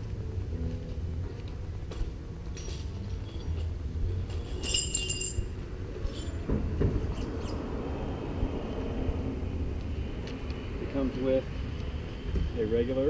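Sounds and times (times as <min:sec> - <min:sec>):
metal wrenches clinking: 0:02.5 - 0:06.5.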